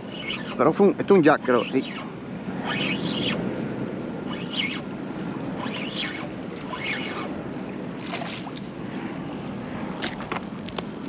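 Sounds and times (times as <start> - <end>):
moving water: 0.0 - 11.0
fish splashing at surface: 8.0 - 8.7.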